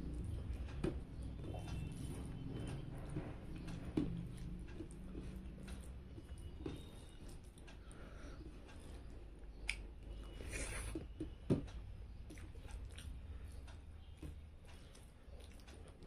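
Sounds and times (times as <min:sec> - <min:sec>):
low steady hum: 0:00.0 - 0:16.0
fingers mixing food on plate: 0:00.2 - 0:11.4
person chewing: 0:04.3 - 0:11.2, 0:12.3 - 0:13.6, 0:14.6 - 0:16.0.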